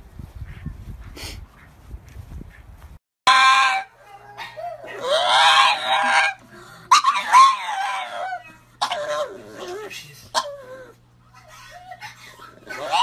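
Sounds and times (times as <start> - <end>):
dog crying: 3.3 - 13.0.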